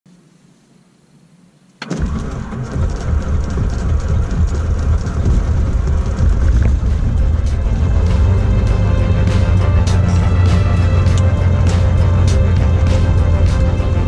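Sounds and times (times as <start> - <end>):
piston engine starting and running: 1.8 - 14.0.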